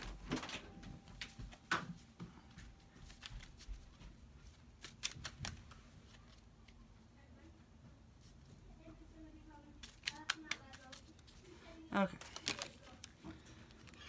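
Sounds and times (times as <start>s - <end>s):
cards being shuffled: 2.8s - 6.7s, 9.7s - 14.0s.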